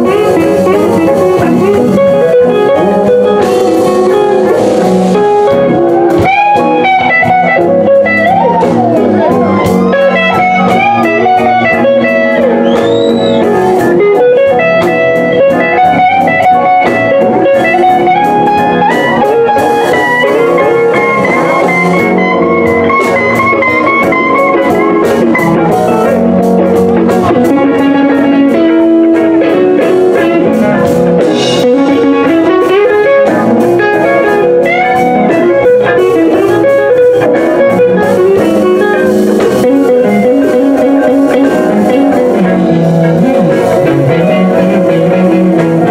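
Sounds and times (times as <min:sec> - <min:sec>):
electric guitar bending notes: 0:00.0 - 0:45.9
live blues band playing: 0:00.0 - 0:45.9.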